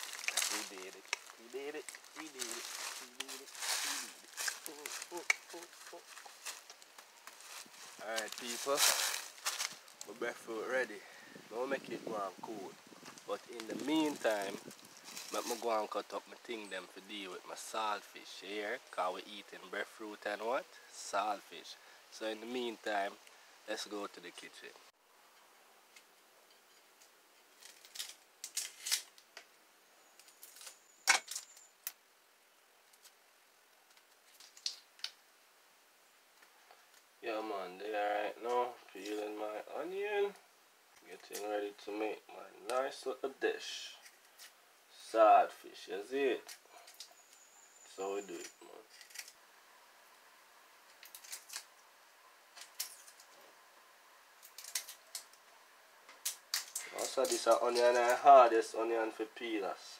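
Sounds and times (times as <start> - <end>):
plastic bags crinkling: 0.0 - 10.0
onion skin crackling and tearing: 0.0 - 10.1, 27.6 - 29.3, 33.9 - 35.2, 48.9 - 49.4, 50.9 - 51.8, 54.4 - 55.4, 56.2 - 57.5.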